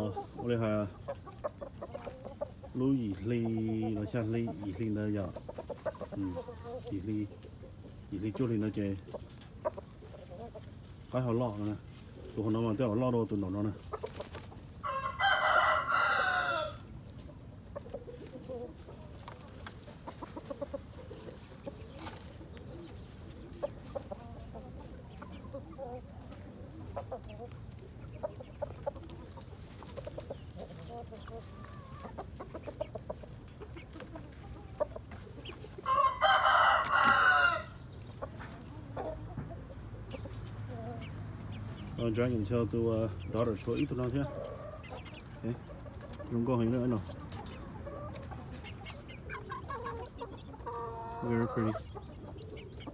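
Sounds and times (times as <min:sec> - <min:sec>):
chicken clucking: 0:00.0 - 0:52.9
rooster crowing: 0:14.8 - 0:16.9, 0:35.8 - 0:37.8.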